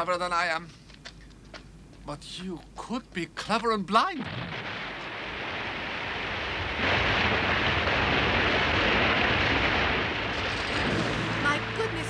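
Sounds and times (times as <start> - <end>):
low rumble: 4.5 - 12.0
water surging and churning: 5.5 - 12.0.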